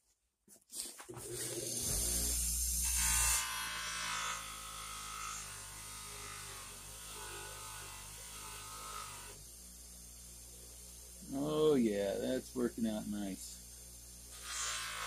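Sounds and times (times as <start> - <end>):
bench grinder motor hum: 1.4 - 11.7, 13.7 - 15.0.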